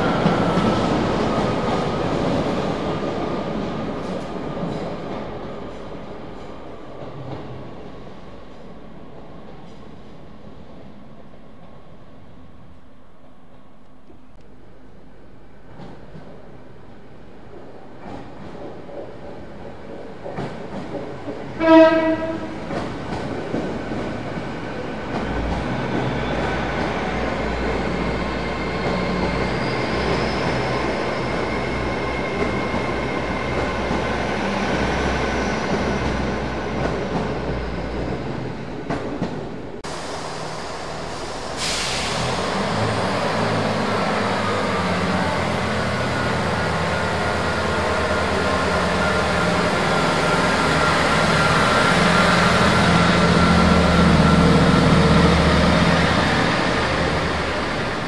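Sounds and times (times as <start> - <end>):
train passing through station: 0.0 - 58.0
diesel train engine drone: 20.3 - 58.0.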